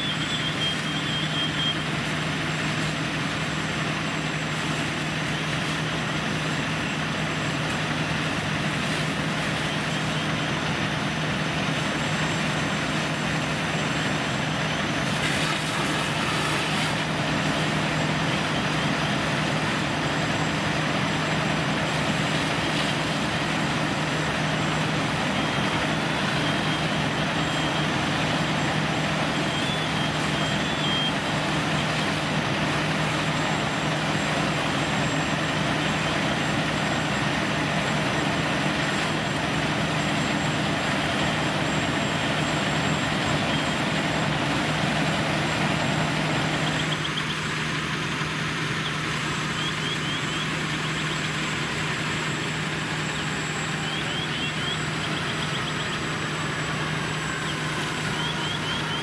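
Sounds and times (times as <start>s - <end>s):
faint high beeps: 0.0s - 1.9s, 52.3s - 59.0s
diesel engine running: 0.0s - 59.0s.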